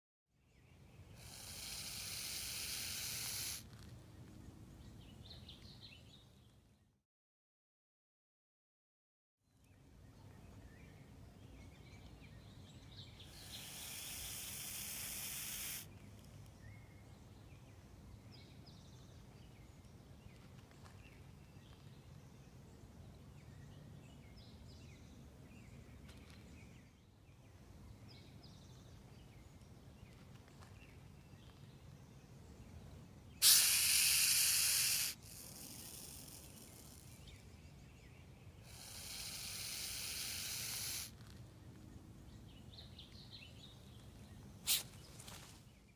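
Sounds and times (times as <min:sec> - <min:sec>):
snake hissing: 0:01.1 - 0:03.7, 0:13.3 - 0:15.9, 0:33.4 - 0:37.3, 0:38.6 - 0:41.2, 0:44.6 - 0:44.9.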